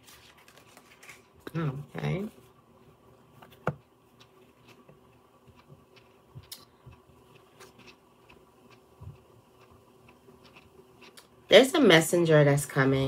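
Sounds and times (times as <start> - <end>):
cards being shuffled: 0.0 - 1.4.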